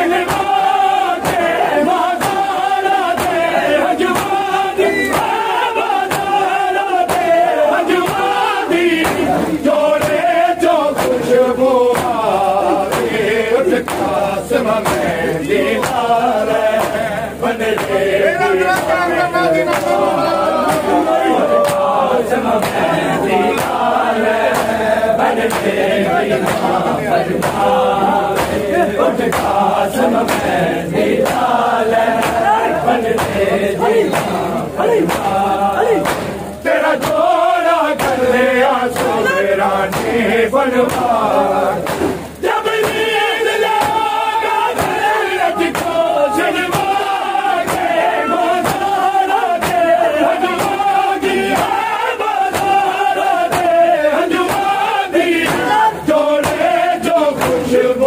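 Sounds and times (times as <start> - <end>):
men chanting in unison: 0.0 - 58.0
hands beating on chest: 20.7 - 21.9, 45.7 - 46.1, 52.5 - 52.8.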